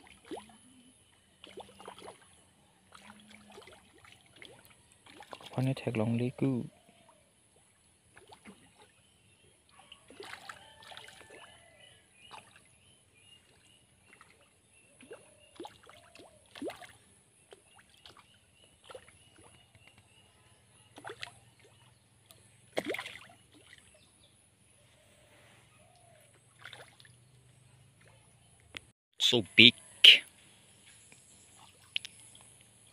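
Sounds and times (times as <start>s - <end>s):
fish splashing in water: 0.0s - 0.7s, 1.4s - 5.7s, 8.1s - 9.0s, 9.8s - 20.0s, 20.8s - 24.0s, 25.9s - 27.3s.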